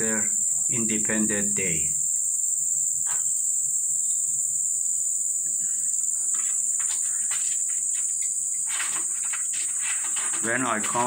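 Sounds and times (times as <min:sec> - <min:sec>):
insect chirring: 0:00.0 - 0:11.0
scuffs and rustles: 0:06.0 - 0:11.0.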